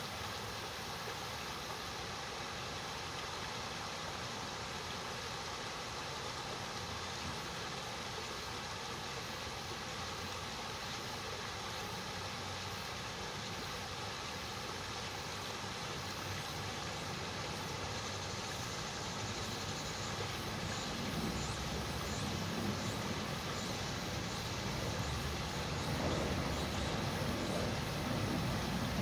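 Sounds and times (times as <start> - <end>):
cicadas buzzing: 0.0 - 29.0
low rumbling noise: 20.1 - 29.0.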